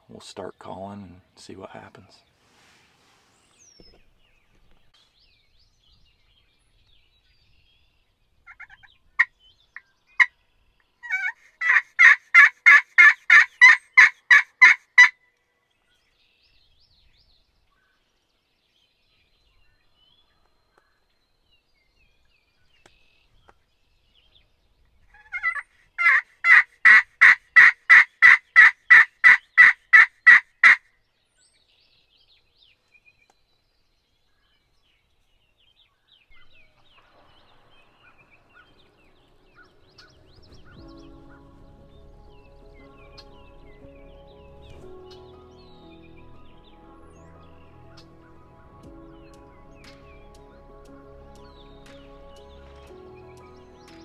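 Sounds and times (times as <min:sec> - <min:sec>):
turkey call yelps: 0:11.0 - 0:15.2, 0:25.2 - 0:30.8.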